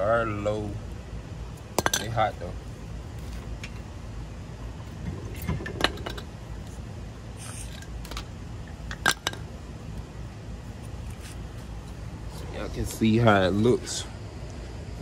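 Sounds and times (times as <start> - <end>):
steady low hum: 0.0 - 15.0
metal tools clinking: 1.8 - 2.4.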